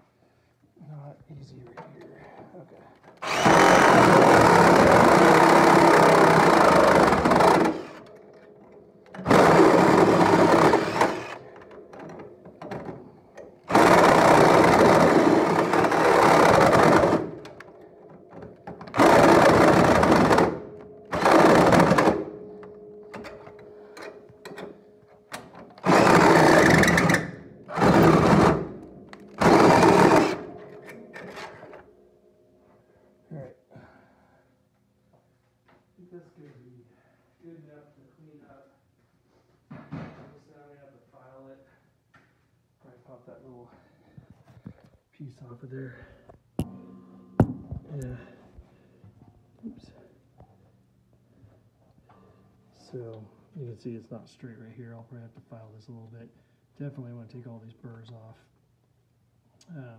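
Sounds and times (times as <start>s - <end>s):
power tool cutting metal: 3.2s - 8.1s, 9.2s - 11.4s, 25.8s - 28.8s, 29.4s - 31.7s.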